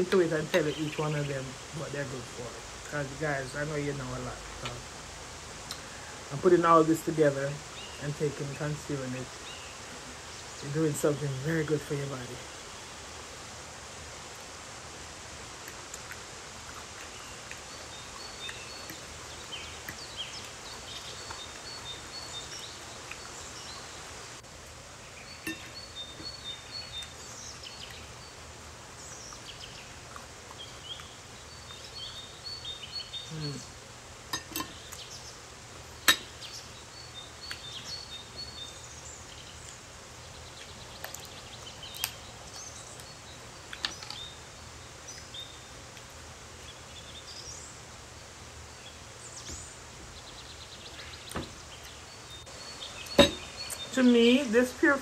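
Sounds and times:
steady hiss: 0.0 - 55.0
high bird chirps: 49.3 - 55.0.

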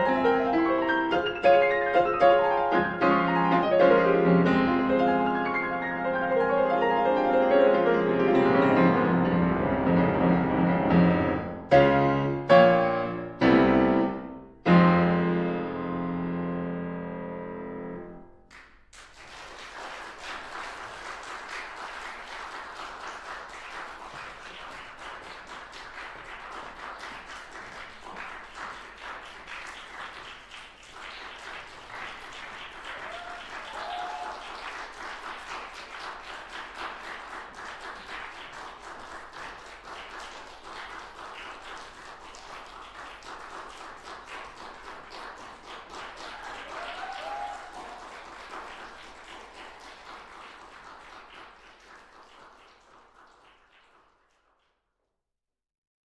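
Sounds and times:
audience applauding: 18.5 - 54.8.

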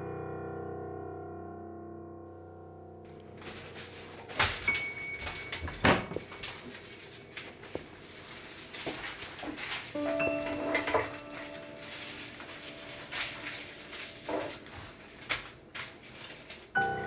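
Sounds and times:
crockery clinking: 3.4 - 8.0, 8.8 - 15.6
cupboards and dishes knocking: 5.5 - 6.4.

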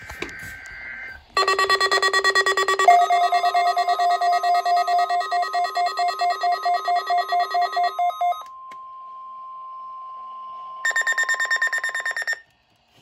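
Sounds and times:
pulsing two-tone alarm beeps: 0.0 - 8.5, 10.8 - 12.4
long steady alert tone: 0.2 - 9.7
fast high beeping: 0.4 - 8.4.

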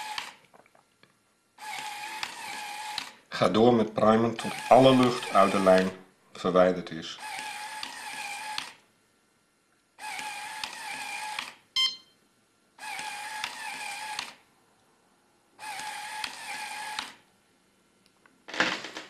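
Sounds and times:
infusion pump motor whirring: 0.0 - 0.3, 1.6 - 3.2, 4.4 - 5.9, 7.2 - 8.8, 10.0 - 11.5, 12.8 - 14.3, 15.6 - 17.2
short beep: 11.8 - 12.2.

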